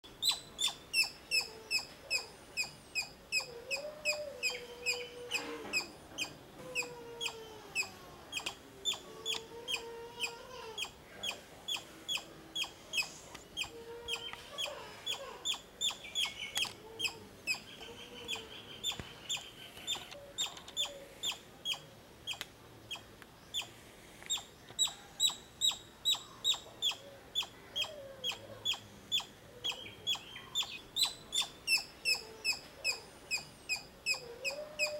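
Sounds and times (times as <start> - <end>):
squirrel high chirping call: 0.1 - 23.7, 24.3 - 34.9
lower wavering calls: 24.8 - 34.9.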